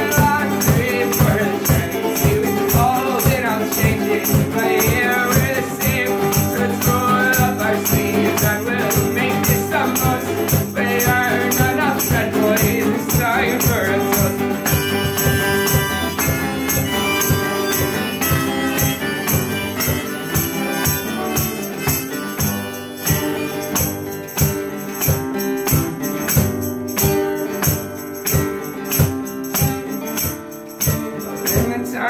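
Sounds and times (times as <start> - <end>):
acoustic guitar strumming: 0.0 - 32.0.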